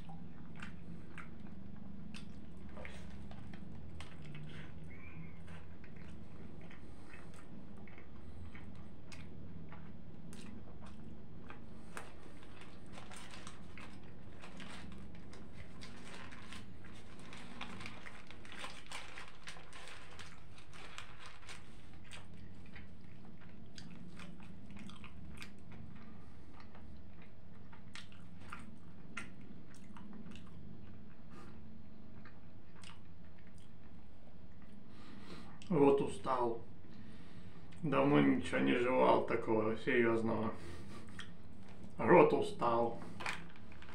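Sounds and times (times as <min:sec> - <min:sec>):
person chewing food: 0:00.0 - 0:35.7, 0:40.6 - 0:42.0.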